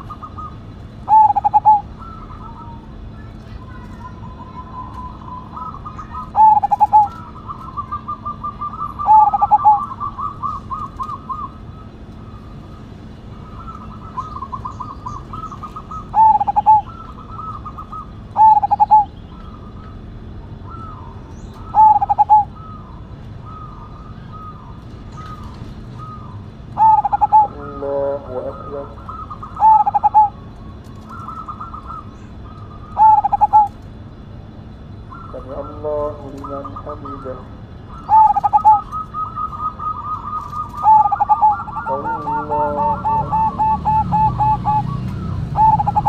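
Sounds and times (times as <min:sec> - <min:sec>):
dove cooing: 0:00.0 - 0:46.0
rapid stuttering coo notes: 0:35.3 - 0:46.0.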